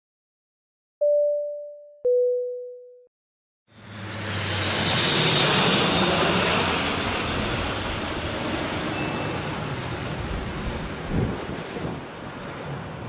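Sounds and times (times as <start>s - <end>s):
turboprop aircraft passing overhead: 3.7s - 13.0s.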